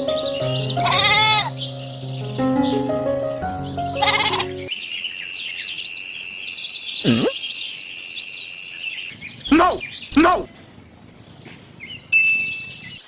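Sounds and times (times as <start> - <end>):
short music phrase: 0.0 - 4.7
bleat-like call: 0.8 - 1.5, 4.0 - 4.5.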